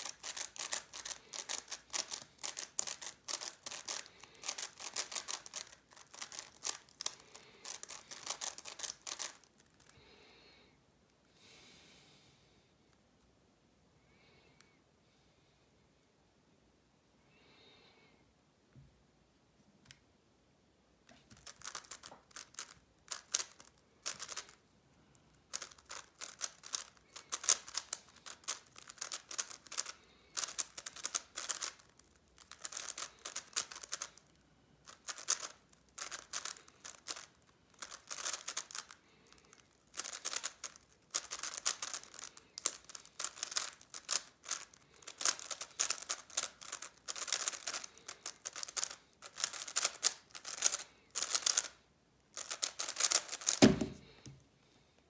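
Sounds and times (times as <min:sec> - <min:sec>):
puzzle cube turning clicks: 0:00.0 - 0:09.9, 0:21.2 - 0:24.6, 0:25.2 - 0:51.8, 0:52.4 - 0:54.0.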